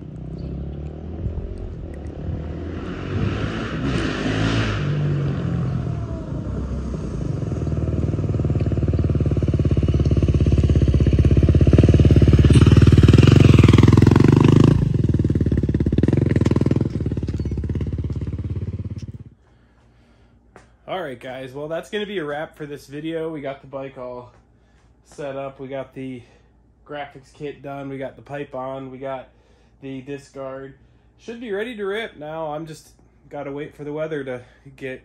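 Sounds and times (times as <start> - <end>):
dirt bike engine revving past: 0.0 - 19.3.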